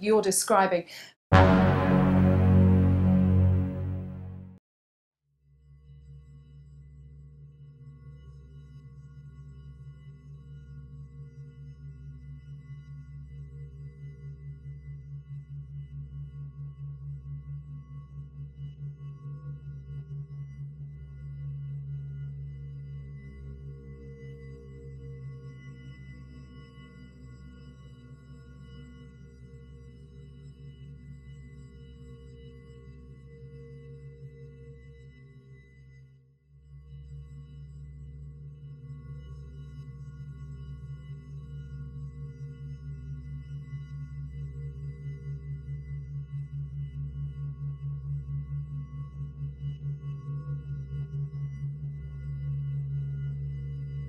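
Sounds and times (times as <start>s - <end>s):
pulsing low drone: 1.3s - 4.5s.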